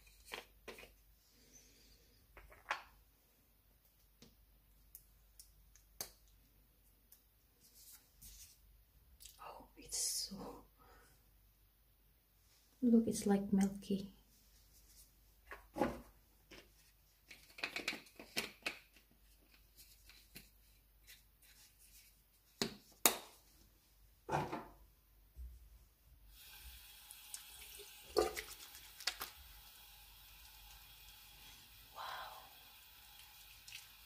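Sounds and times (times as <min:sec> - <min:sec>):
water splashing at sink: 0:26.3 - 0:34.0.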